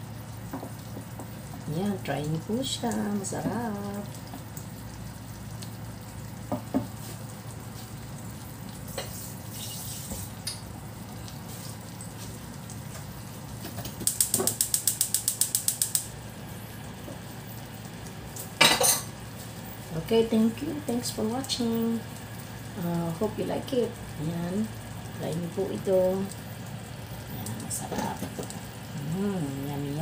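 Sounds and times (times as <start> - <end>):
rapid even clicking: 14.0 - 16.1.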